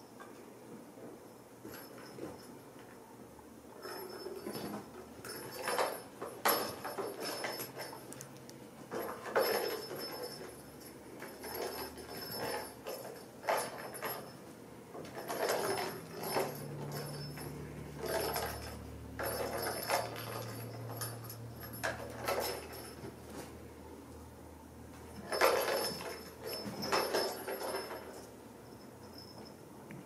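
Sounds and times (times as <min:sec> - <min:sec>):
toy rattling and jingling: 0:03.8 - 0:08.2, 0:08.9 - 0:23.2, 0:25.2 - 0:29.6.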